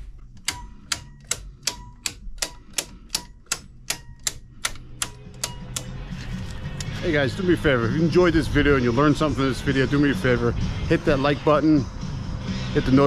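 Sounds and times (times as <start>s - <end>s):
circuit breakers clicking: 0.0s - 7.0s.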